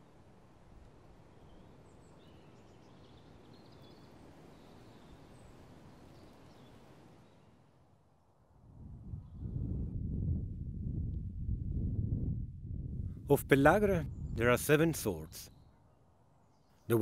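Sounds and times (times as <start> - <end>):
faint high bird chirps: 1.4 - 7.6.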